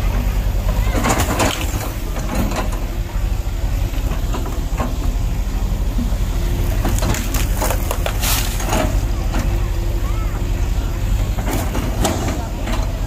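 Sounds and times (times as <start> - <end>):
excavator diesel engine running: 0.0 - 13.0
branches crackling: 6.4 - 9.2.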